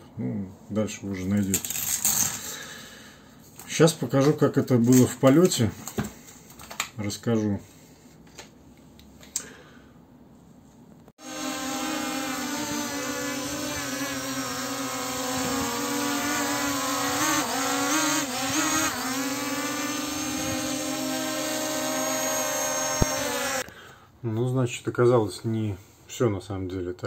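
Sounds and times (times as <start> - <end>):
quadcopter motors buzzing: 11.2 - 23.6.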